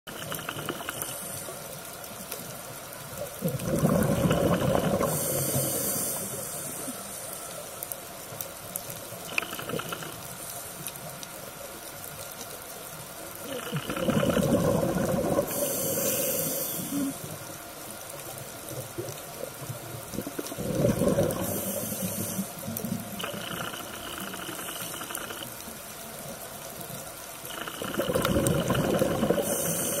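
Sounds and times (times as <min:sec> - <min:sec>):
regulator bubbles exhaled: 0:00.1 - 0:01.4, 0:03.4 - 0:07.0, 0:13.4 - 0:17.3, 0:20.0 - 0:25.4, 0:27.5 - 0:30.0
airy hiss of inhaling: 0:05.0 - 0:07.7, 0:15.4 - 0:17.4, 0:21.1 - 0:23.4, 0:29.2 - 0:30.0.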